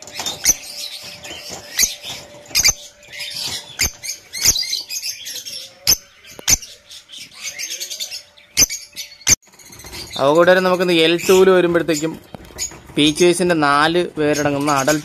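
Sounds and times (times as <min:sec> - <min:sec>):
lovebirds chattering: 0:00.0 - 0:15.0.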